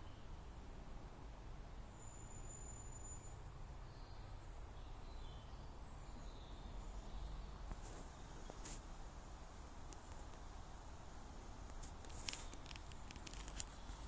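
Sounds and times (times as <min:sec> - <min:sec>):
low steady rumble and hiss: 0:00.0 - 0:14.0
faint bird chirps: 0:01.8 - 0:07.6.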